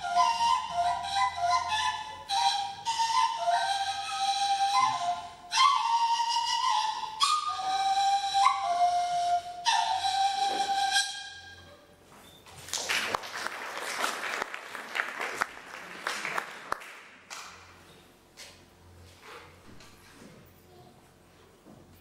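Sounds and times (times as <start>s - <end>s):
folk flute playing: 0.0s - 12.0s
audience applause: 12.7s - 17.5s.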